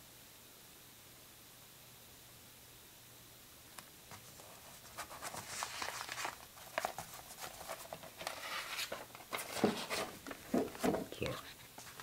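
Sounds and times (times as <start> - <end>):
record sleeve rustling: 3.8 - 12.0.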